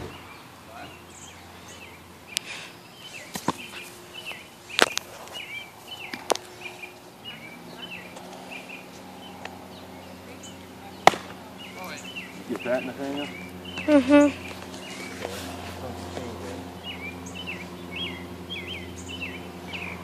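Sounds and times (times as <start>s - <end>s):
bird chirping: 0.0s - 20.0s
sharp smacks: 4.7s - 5.2s, 11.0s - 11.4s.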